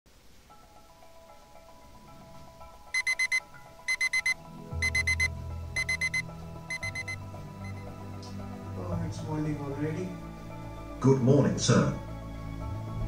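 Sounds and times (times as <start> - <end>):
soft background music: 0.3 - 13.0
digital alarm beeping: 3.0 - 7.9.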